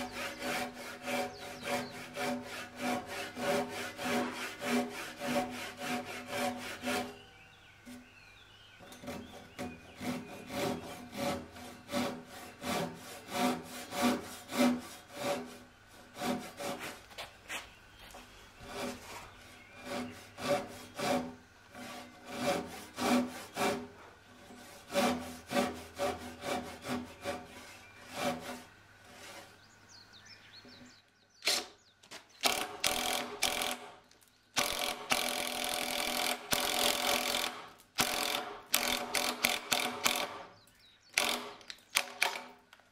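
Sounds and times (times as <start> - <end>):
hand saw cutting wood: 0.0 - 7.3, 8.8 - 17.6, 18.6 - 29.6, 32.4 - 34.0, 34.6 - 40.6, 41.2 - 42.5
cordless drill boring into wood: 32.4 - 33.9, 34.6 - 40.4, 41.2 - 42.4.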